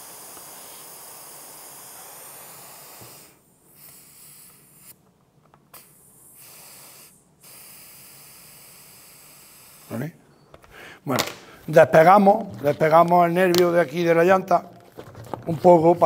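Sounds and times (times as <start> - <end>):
air hissing out of tyre: 0.0 - 5.0, 5.7 - 10.1.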